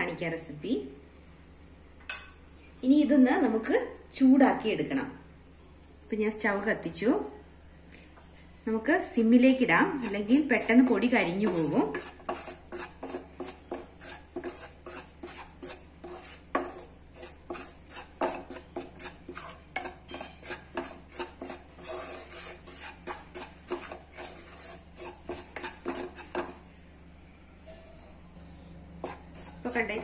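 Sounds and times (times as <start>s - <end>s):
wooden spatula scraping spice powder: 8.4s - 26.7s, 29.0s - 30.0s.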